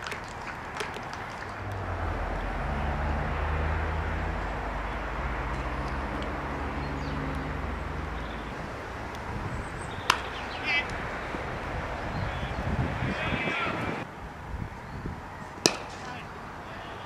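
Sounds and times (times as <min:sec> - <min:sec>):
open-air background noise: 0:00.0 - 0:17.0
low engine drone: 0:01.6 - 0:08.8.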